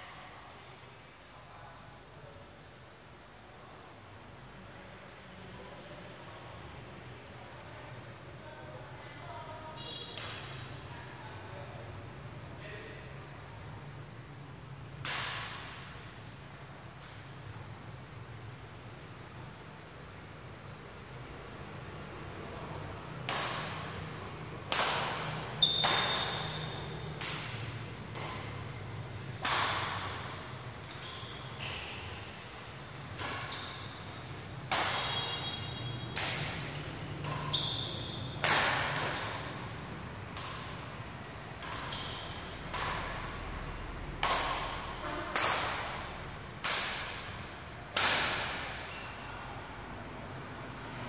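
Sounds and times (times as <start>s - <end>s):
racket hitting shuttlecock: 10.0s - 10.8s, 15.0s - 16.0s, 23.2s - 32.2s, 33.0s - 39.6s, 40.3s - 43.5s, 44.1s - 48.9s.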